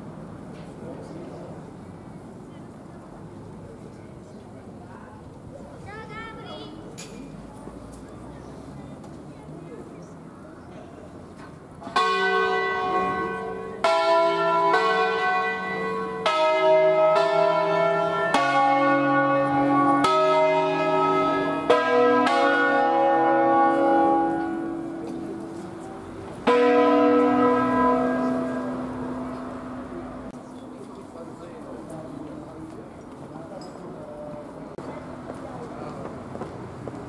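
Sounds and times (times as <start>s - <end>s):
church bells ringing: 11.9s - 30.4s.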